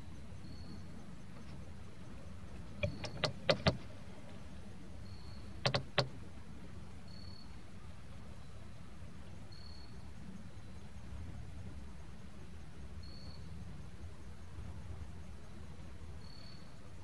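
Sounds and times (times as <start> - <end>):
paddle knocking canoe hull: 2.8 - 4.0, 5.6 - 6.3.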